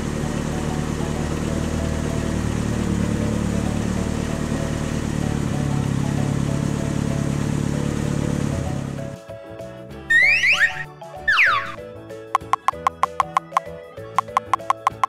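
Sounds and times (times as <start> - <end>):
toy engine hum: 0.0 - 9.2, 10.1 - 11.8, 12.4 - 15.0.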